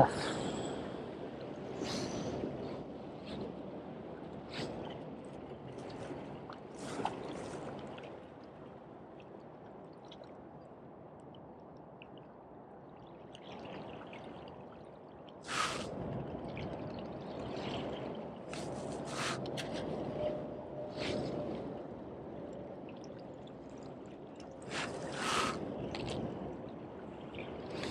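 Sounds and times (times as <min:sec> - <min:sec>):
waves lapping against rocks: 0:00.0 - 0:09.2, 0:13.4 - 0:20.1, 0:24.0 - 0:27.9
water splashes: 0:13.0 - 0:20.2, 0:22.8 - 0:27.9.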